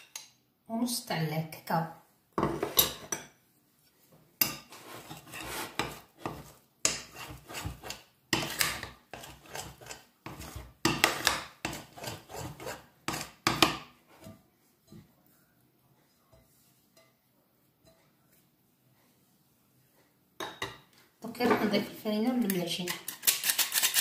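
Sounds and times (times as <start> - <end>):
dough scraping against glass bowl: 4.7 - 13.4.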